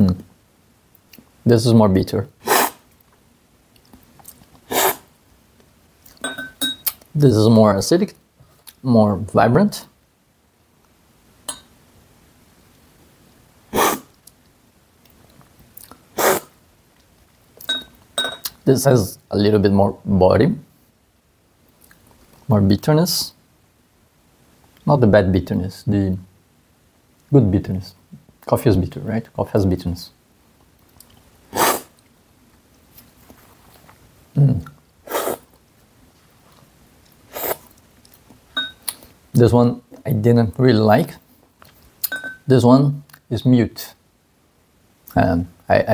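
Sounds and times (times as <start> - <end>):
loud coffee slurps: 2.5 - 2.8, 4.7 - 5.0, 31.6 - 31.9, 37.3 - 37.7
spoon clinking against glass: 6.2 - 6.9, 11.5 - 11.7, 17.6 - 18.5, 38.6 - 38.9, 42.0 - 42.5.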